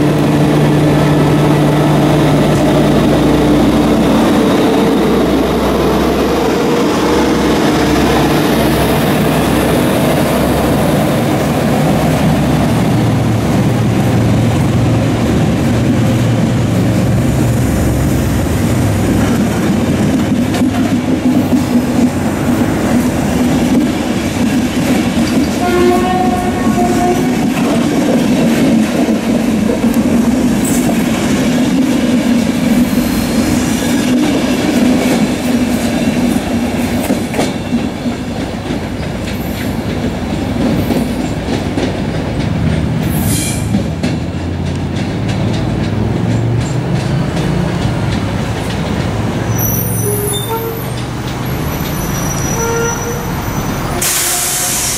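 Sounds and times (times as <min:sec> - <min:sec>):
passenger train rolling past: 0:00.0 - 0:54.9
train horn: 0:25.5 - 0:27.8, 0:49.6 - 0:51.0, 0:52.2 - 0:54.9.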